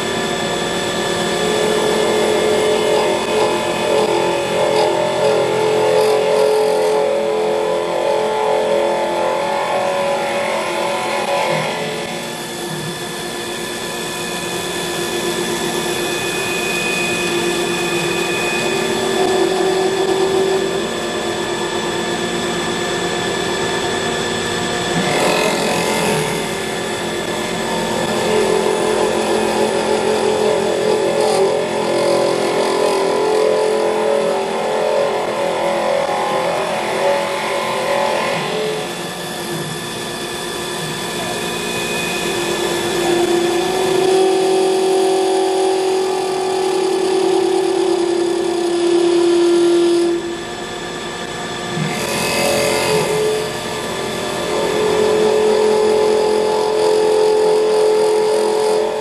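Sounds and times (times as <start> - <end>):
lathe machine whine: 0.0 - 59.0
cutting tool scraping wood: 1.7 - 7.2.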